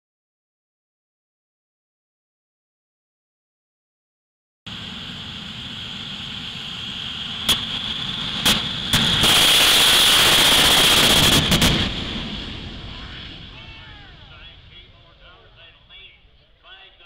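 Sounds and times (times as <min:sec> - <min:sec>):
loud afterburner blast: 0:04.7 - 0:15.2
high turbine whine: 0:04.7 - 0:17.0
afterburner popping bangs: 0:07.4 - 0:15.0.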